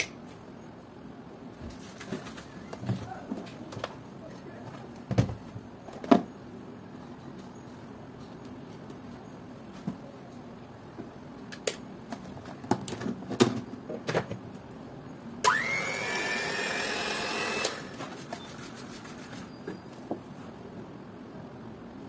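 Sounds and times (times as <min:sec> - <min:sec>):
hand mixer motor whine: 0:15.5 - 0:17.9.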